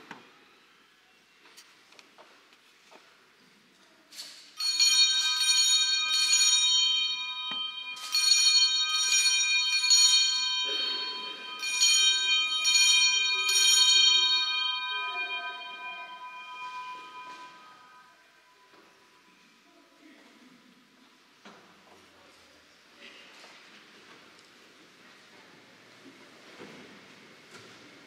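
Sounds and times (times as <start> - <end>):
altar bells shaken: 4.6 - 18.7.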